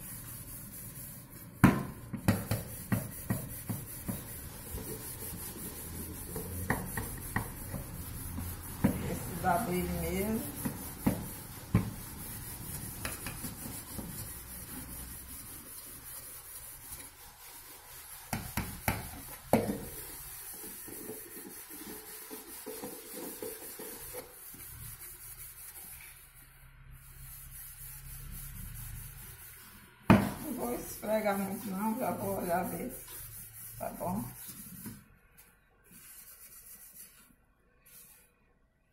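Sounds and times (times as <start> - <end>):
sponge scrubbing saucepan: 0.0 - 35.1, 35.9 - 38.3.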